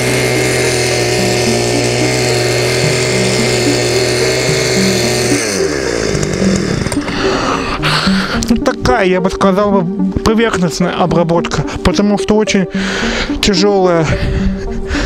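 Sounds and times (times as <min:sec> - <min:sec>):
cultivator engine running: 0:00.0 - 0:09.5.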